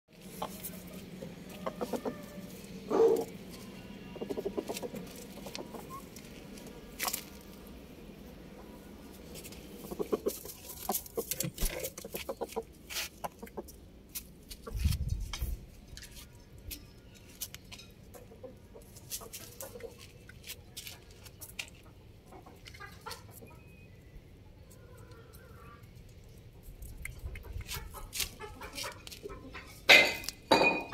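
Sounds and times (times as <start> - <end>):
chickens clucking: 0.2 - 7.6, 8.4 - 13.8, 17.4 - 23.8, 26.8 - 30.4.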